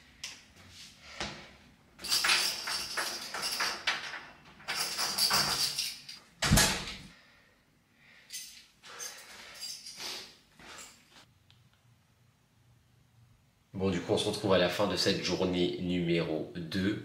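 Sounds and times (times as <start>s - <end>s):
door lock rattling and scraping: 2.0s - 6.9s.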